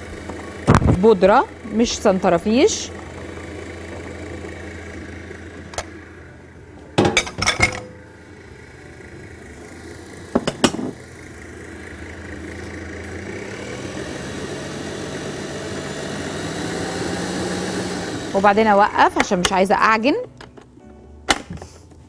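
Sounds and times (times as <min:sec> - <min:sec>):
stand mixer motor humming: 0:00.0 - 0:06.9, 0:08.2 - 0:18.8.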